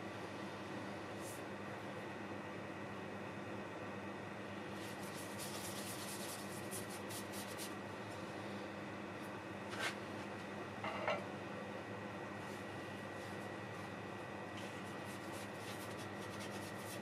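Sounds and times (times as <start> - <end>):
brush strokes scratching: 4.8 - 7.7, 14.6 - 17.0.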